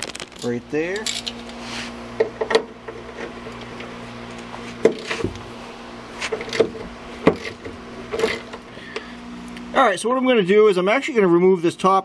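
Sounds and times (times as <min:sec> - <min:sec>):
steady low hum: 0:00.0 - 0:12.0
metallic clicks and clinks: 0:00.4 - 0:01.5.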